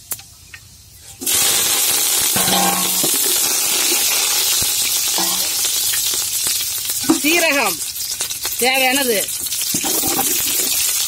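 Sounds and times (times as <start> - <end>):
leaves sizzling in hot oil: 0.0 - 11.0.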